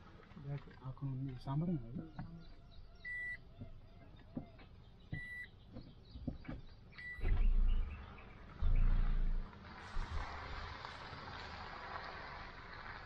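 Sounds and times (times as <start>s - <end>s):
car warning chime beeps: 3.0s - 3.4s, 5.1s - 5.5s, 7.0s - 7.4s
light knocks and rattles: 3.5s - 7.6s.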